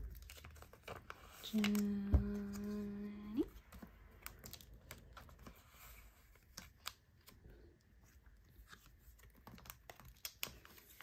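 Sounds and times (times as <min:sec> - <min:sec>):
plastic sleeves crinkling: 0:00.0 - 0:11.0.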